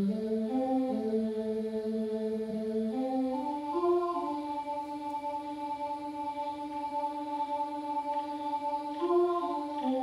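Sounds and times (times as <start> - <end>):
synthetic voices holding a chord: 0.0 - 10.0.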